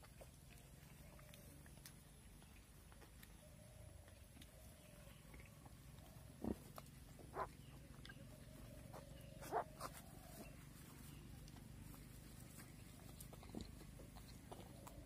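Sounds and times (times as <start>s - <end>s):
pig calls: 5.0s - 10.4s.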